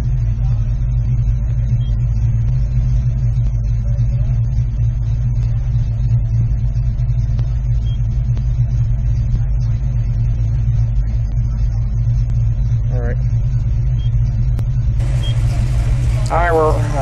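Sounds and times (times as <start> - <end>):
car engine idling: 14.9 - 17.0.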